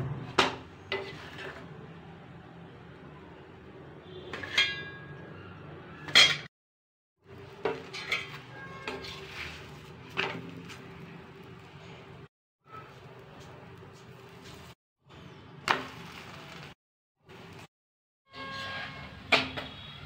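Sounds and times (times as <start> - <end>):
metal cookware clinking: 4.3 - 5.2, 6.0 - 6.5, 7.6 - 9.2.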